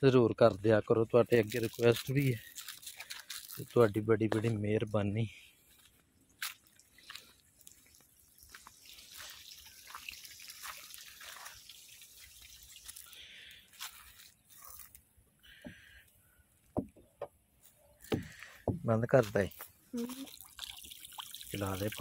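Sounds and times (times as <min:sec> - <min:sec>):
small clicks and crackles: 0:01.3 - 0:05.0
water trickling and dripping: 0:06.4 - 0:15.0, 0:19.5 - 0:22.0.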